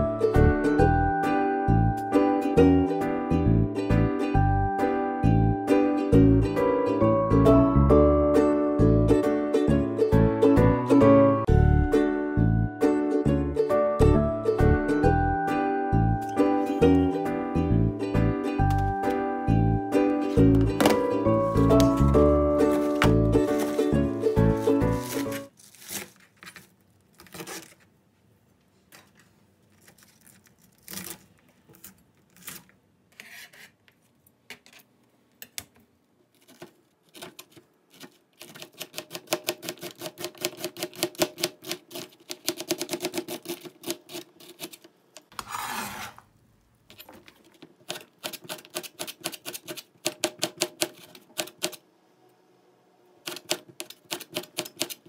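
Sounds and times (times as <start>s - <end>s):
knife cutting on plastic board: 20.5s - 26.2s, 36.4s - 46.3s
knife scraping board: 20.9s - 26.1s, 32.4s - 33.8s, 43.4s - 46.3s.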